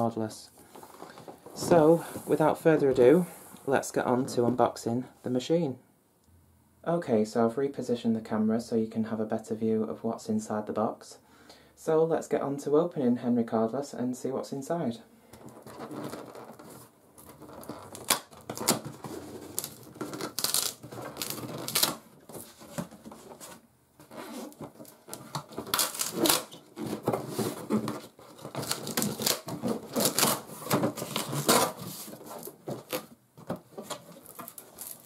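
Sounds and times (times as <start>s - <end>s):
cardboard and tape crackling: 15.4s - 35.0s.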